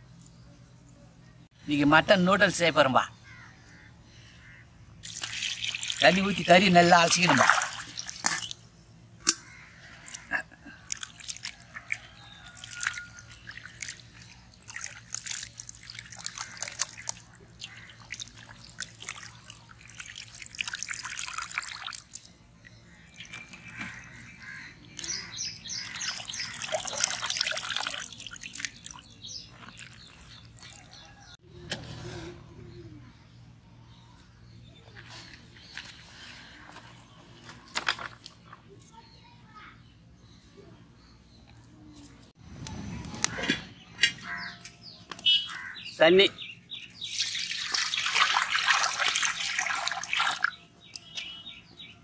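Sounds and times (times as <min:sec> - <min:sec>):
meat splashing in water: 0:05.0 - 0:08.6, 0:10.8 - 0:22.3, 0:25.8 - 0:30.9, 0:47.0 - 0:50.6.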